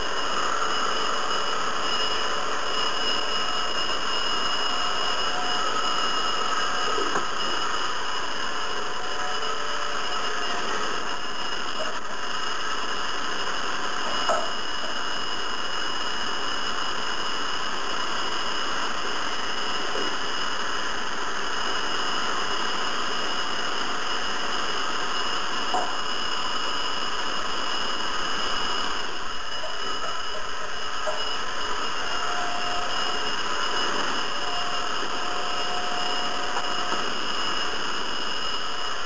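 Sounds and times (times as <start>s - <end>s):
hair dryer running: 0.0s - 11.1s.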